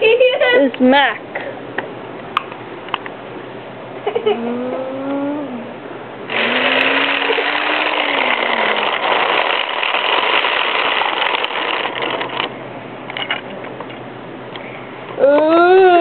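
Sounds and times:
person humming engine noise: 4.0 - 10.1, 14.6 - 16.0
toy truck wheels rattling on concrete: 6.3 - 12.5.

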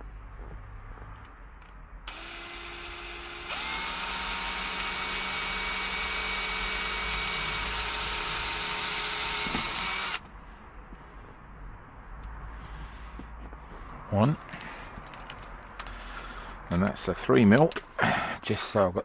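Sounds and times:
cordless drill whining: 2.0 - 10.2.

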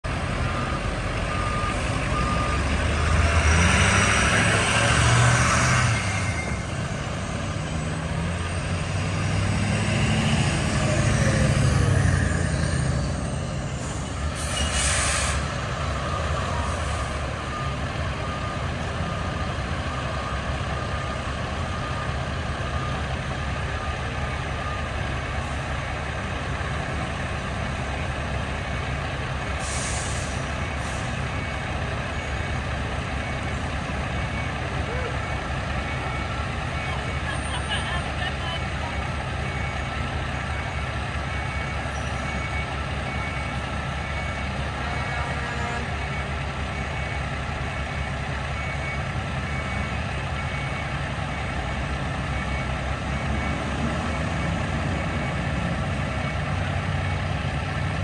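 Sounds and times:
fire truck engines running: 0.0 - 58.0
reversing beeper: 0.1 - 58.0
air brake hiss: 13.9 - 15.5, 29.6 - 31.1.

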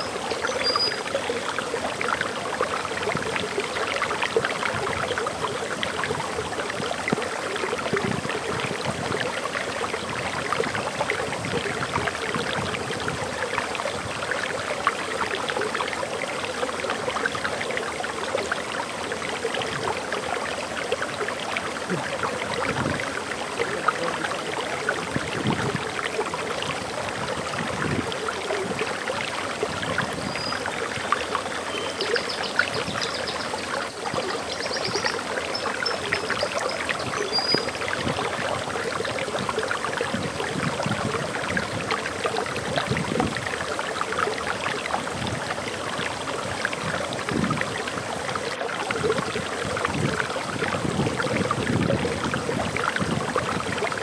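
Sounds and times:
faint high bird chirps: 0.0 - 1.1
water rushing over waterfall: 0.0 - 54.0.

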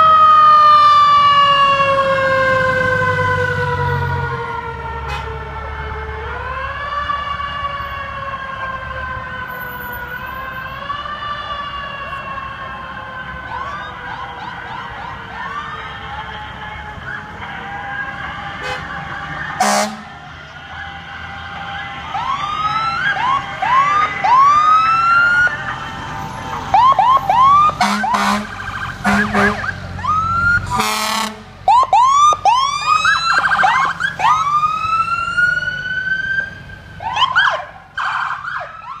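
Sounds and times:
sirens whooping: 0.0 - 39.0
truck engines: 0.0 - 39.0
air horn blasts: 5.1 - 5.3, 18.6 - 18.9, 19.6 - 20.2, 27.8 - 29.7, 30.7 - 31.5.

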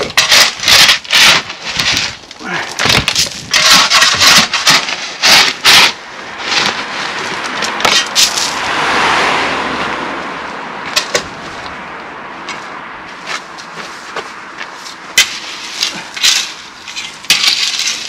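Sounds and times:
loose stone rushing: 0.0 - 6.9, 15.2 - 18.0
spade scraping crushed stone: 0.0 - 8.6, 14.8 - 18.0.

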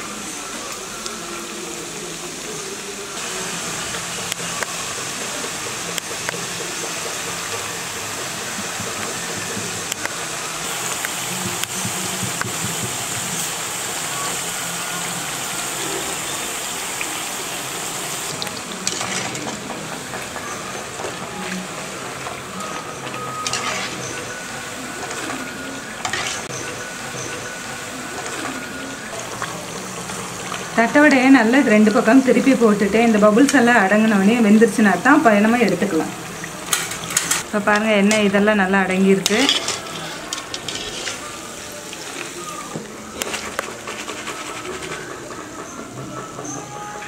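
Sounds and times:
oil bubbling and sizzling: 0.0 - 46.6.

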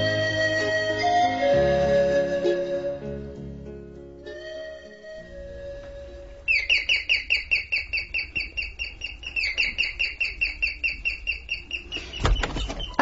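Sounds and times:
rapid high chirps: 6.5 - 12.2.

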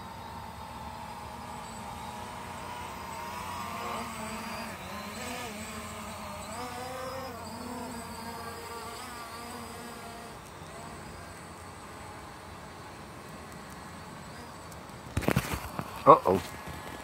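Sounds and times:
drone propellers buzzing: 0.0 - 17.0.

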